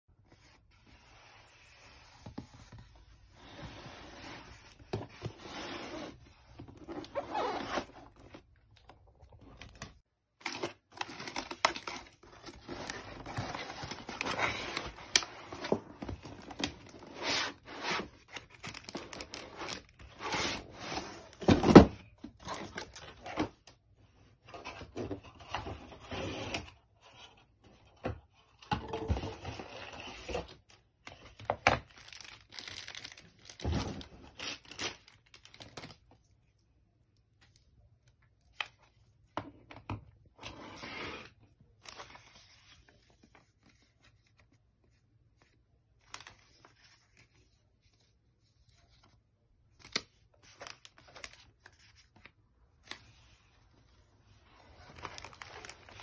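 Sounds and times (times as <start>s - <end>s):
cardboard rustling and scraping: 0.3s - 8.6s, 10.5s - 23.6s.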